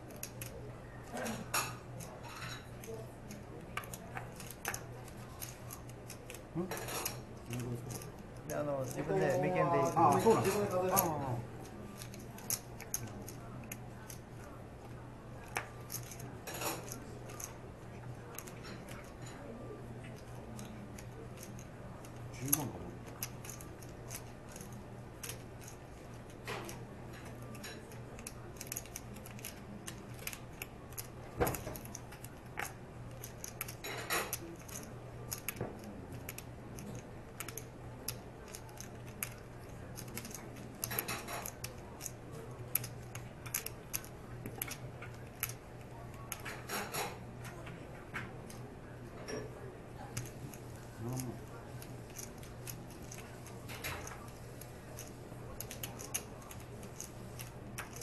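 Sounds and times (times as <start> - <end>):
poker chips clicking: 15.4 - 17.6, 20.1 - 46.9.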